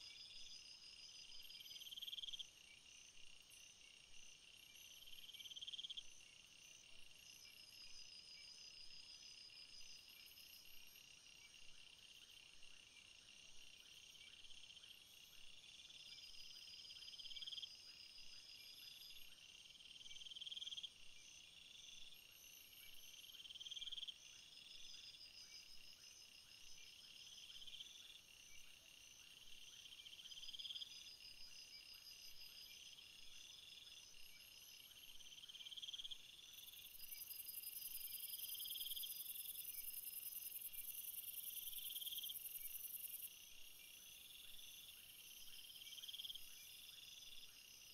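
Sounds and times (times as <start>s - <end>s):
buzzy insect call: 15.9s - 47.9s
insect pulsing trill: 29.8s - 47.9s.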